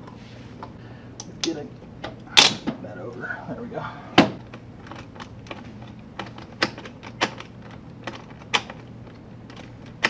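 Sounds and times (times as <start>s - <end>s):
plastic parts clicking and knocking: 4.2s - 10.0s.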